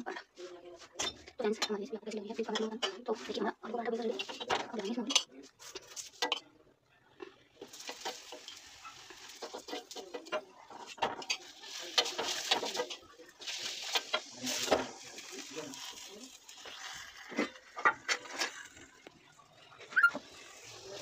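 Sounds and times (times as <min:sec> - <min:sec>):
oil sizzling in frying pan: 0:07.6 - 0:18.9, 0:20.2 - 0:21.0.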